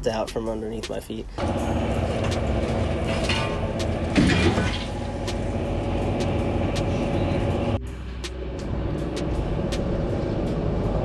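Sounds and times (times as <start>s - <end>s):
city noise drone: 1.3s - 11.0s
metal clatter: 1.4s - 6.4s.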